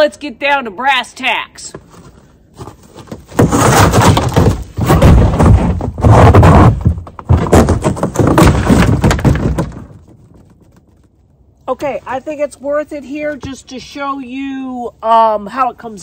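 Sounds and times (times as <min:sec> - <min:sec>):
microphone handling thunks and rubbing: 0:02.6 - 0:09.8.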